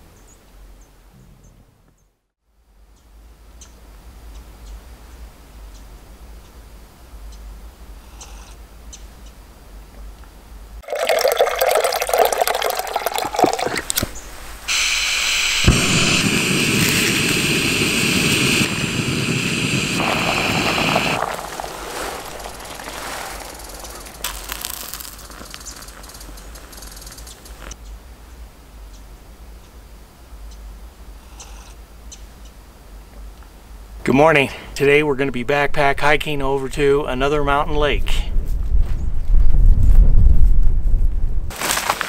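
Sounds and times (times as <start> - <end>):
water pouring into cup: 10.8 - 14.1, 20.0 - 26.6
gas hissing: 12.8 - 27.8
gas burner running: 14.7 - 21.3.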